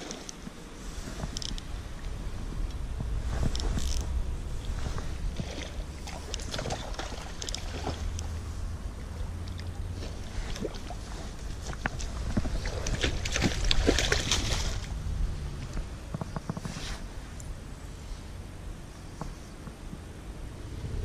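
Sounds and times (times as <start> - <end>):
hands rustling fishing line: 0.0 - 8.4
low steady rumble: 0.0 - 21.0.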